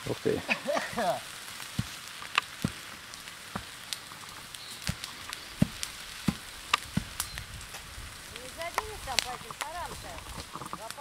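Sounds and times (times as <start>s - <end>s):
fire hiss: 0.0s - 11.0s
grass fire crackling: 0.0s - 11.0s.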